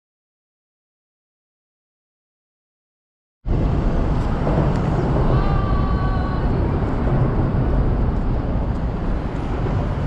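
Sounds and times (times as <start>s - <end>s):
low city rumble: 3.4s - 10.0s.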